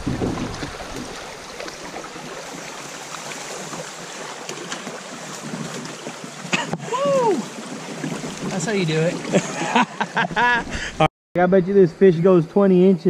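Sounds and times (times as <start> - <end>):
sharp knocks of kayak: 0.0 - 1.7
creek water running over rocks: 0.0 - 10.4
water splashing: 0.0 - 10.9.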